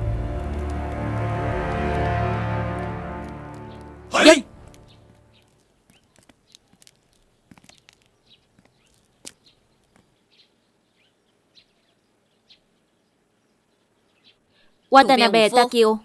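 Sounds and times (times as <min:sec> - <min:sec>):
bird chirps: 0:04.6 - 0:15.4.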